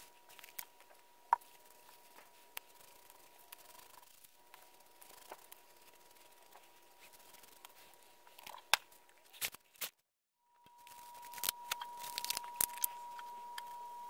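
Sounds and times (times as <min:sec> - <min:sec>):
dauber dabbing on leather: 0:01.4 - 0:08.4
faint steady high tone: 0:10.4 - 0:14.0.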